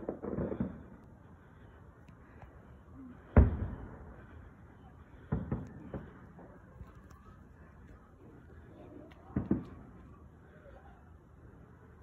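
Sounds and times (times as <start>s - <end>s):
firework explosion: 0.0s - 1.0s.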